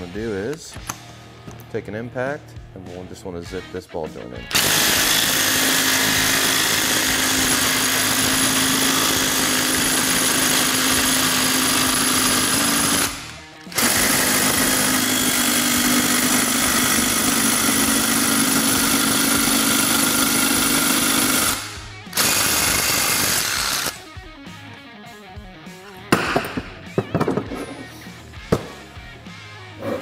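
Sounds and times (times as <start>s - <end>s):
impact wrench hammering: 4.5s - 24.0s, 26.1s - 27.8s, 28.5s - 28.8s.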